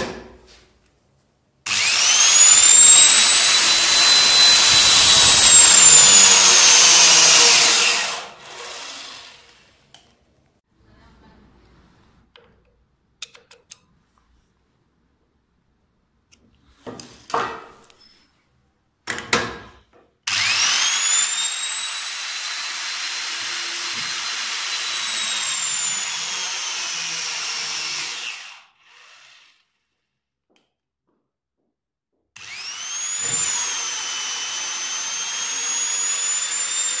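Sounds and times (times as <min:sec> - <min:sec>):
torque wrench motor whining: 0:01.7 - 0:09.7, 0:32.4 - 0:37.0.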